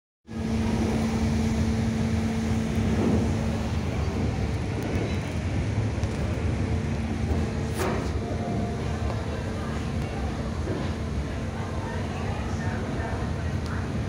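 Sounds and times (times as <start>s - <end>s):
churning wake water: 0.3s - 14.0s
ferry engines droning: 0.3s - 14.0s.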